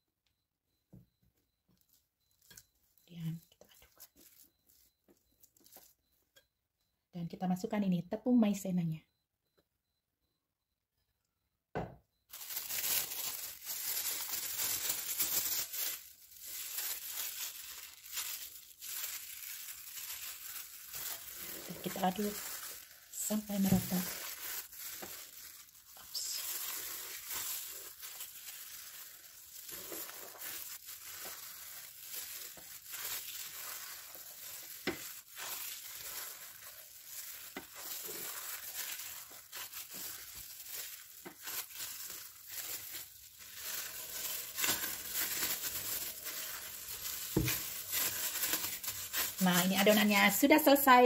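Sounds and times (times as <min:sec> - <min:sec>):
plastic gloves crinkling: 0:01.0 - 0:06.4, 0:12.2 - 0:51.0
starch crunching in dough: 0:12.4 - 0:51.0.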